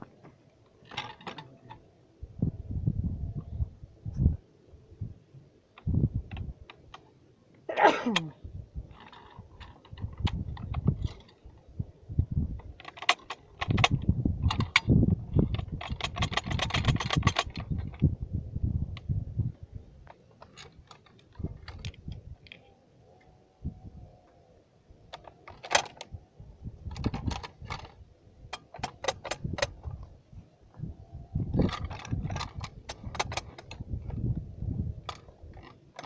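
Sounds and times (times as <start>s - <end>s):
metallic clicks and scrapes: 0.6s - 1.9s, 8.9s - 11.7s, 12.5s - 18.1s, 20.0s - 22.8s, 25.1s - 26.2s, 26.8s - 30.1s, 31.4s - 34.4s, 35.0s - 36.0s.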